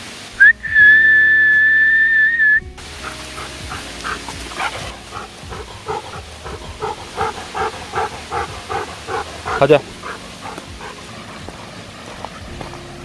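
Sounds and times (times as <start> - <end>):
dog panting: 2.9 - 12.8.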